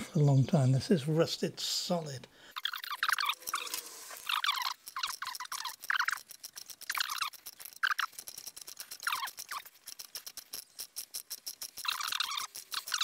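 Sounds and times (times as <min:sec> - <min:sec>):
squeaking seized nut: 0:02.6 - 0:13.0
socket ratchet clicking: 0:02.9 - 0:13.0.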